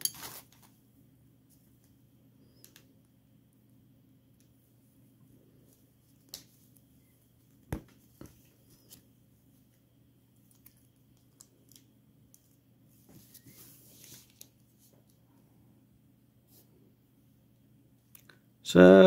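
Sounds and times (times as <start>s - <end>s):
soft handling rustle: 5.2s - 15.4s.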